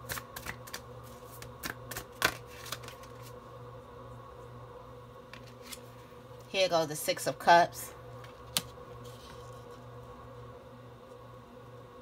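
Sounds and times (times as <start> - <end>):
cards clicking and tapping: 0.0 - 3.3
faint steady hum: 0.0 - 12.0.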